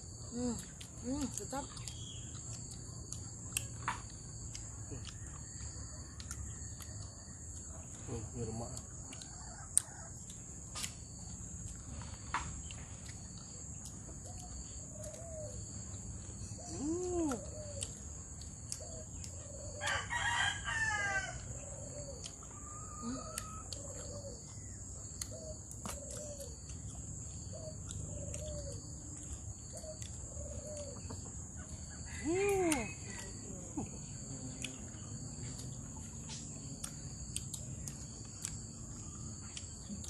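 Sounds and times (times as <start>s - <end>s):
high insect drone: 0.0s - 40.0s
rooster crowing: 19.8s - 22.0s.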